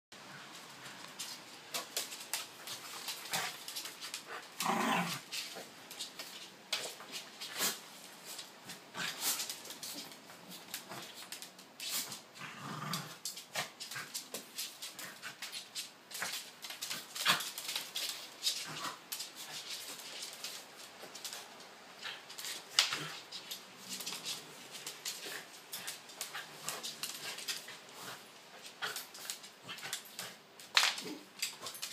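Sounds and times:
paws clicking on hard floor: 0:00.5 - 0:31.9
dogs growling: 0:04.3 - 0:05.3, 0:12.4 - 0:13.3.

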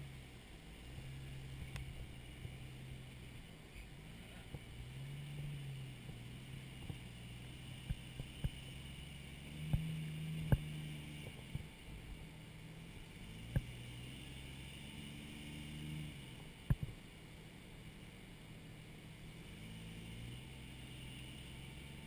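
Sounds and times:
off-road vehicle engine revving: 0:00.0 - 0:17.0, 0:17.8 - 0:22.0.

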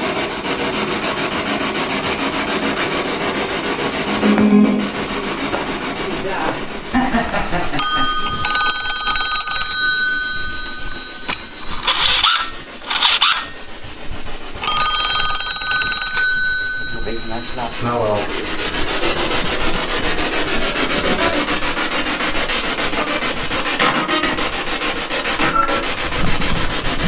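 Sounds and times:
short noisy bursts: 0:03.7 - 0:27.0
telephone bell ringing: 0:07.8 - 0:12.6, 0:14.6 - 0:17.6.

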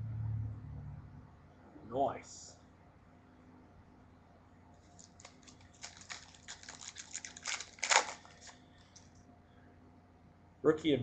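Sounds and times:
foil wrapper tearing and crinkling: 0:04.9 - 0:08.6.

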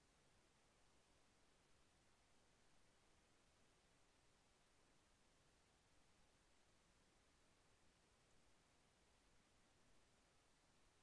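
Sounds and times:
faint steady hiss: 0:00.0 - 0:11.0.

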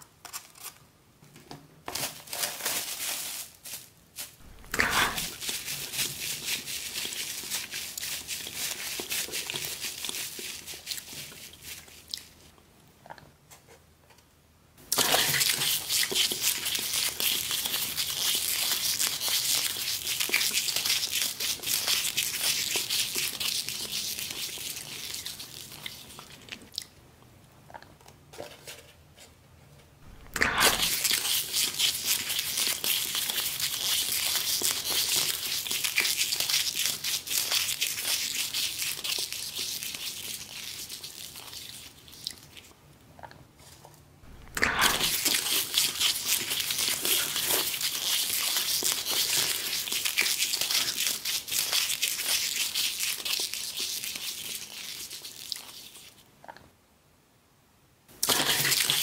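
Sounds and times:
paper towel crinkling: 0:01.9 - 0:10.2.

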